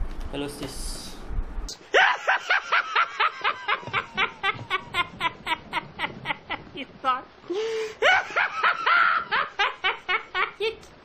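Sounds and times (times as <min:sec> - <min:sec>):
high-pitched laugh: 0:01.9 - 0:06.9, 0:08.0 - 0:10.9.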